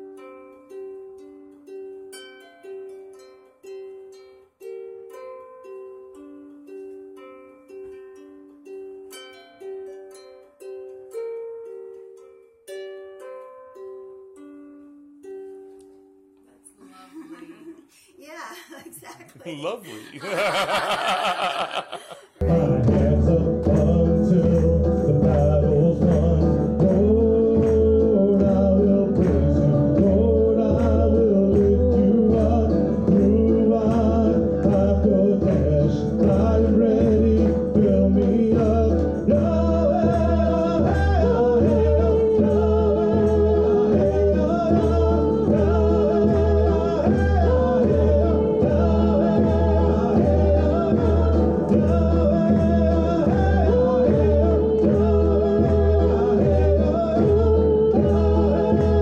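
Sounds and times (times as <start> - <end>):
backing instruments: 19.4 - 59.0
frame drum beat: 20.2 - 59.0
woman singing: 22.4 - 59.0.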